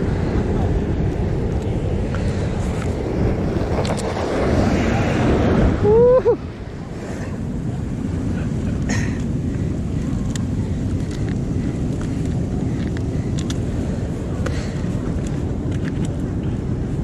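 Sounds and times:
ocean surf washing over rocks: 0.0 - 17.0
wind on microphone: 0.0 - 17.0.

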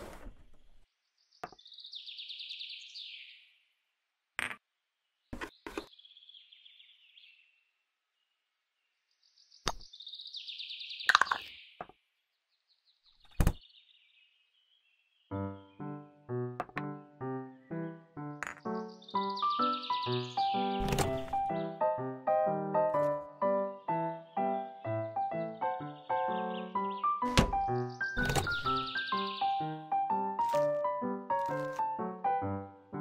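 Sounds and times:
plastic toy scraping on shelves: 0.0 - 0.8.

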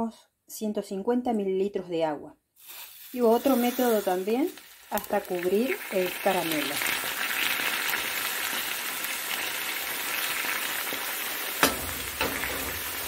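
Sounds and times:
caramel sizzling and bubbling: 2.6 - 13.0.

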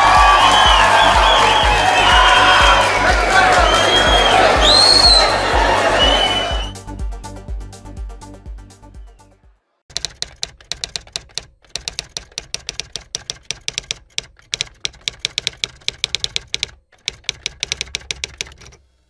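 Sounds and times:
music: 0.0 - 9.8
typewriter keystroke clacks: 9.9 - 18.8.

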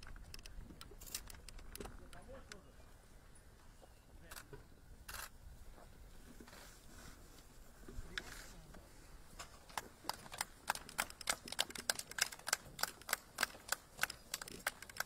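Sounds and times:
sharp regular clicks: 0.0 - 2.7, 5.1 - 5.3, 9.4 - 15.0.

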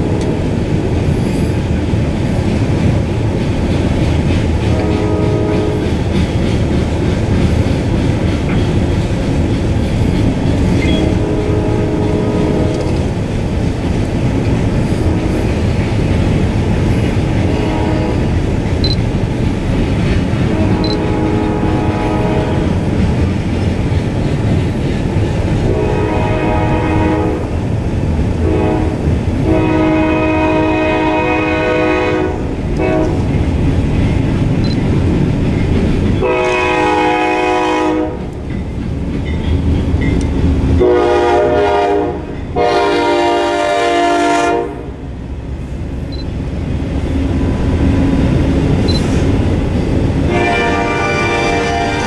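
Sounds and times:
locomotive horn blasts: 0.0 - 0.6, 4.7 - 6.0, 10.8 - 13.1, 17.4 - 18.3, 20.4 - 22.9, 25.6 - 27.6, 28.4 - 33.3, 36.2 - 38.3, 40.8 - 45.0, 50.2 - 52.0
train wheels rumbling on rail: 0.0 - 52.0.

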